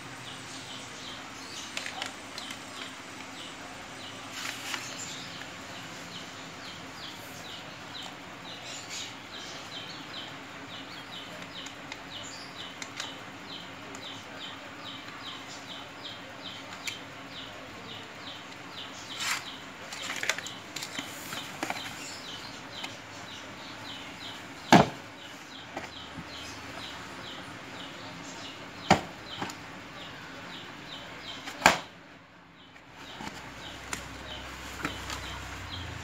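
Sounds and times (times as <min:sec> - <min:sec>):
hand tool punching plastic: 0:24.6 - 0:25.0.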